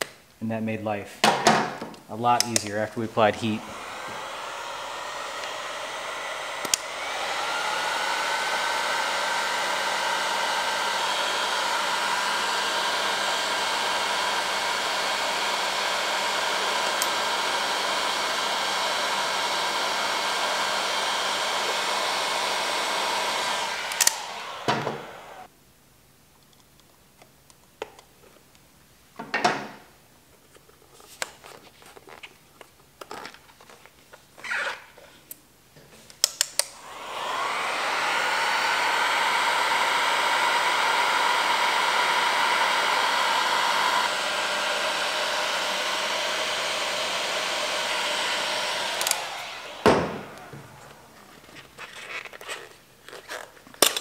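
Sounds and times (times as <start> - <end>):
heat gun fan blowing: 2.2 - 25.5, 36.5 - 51.8.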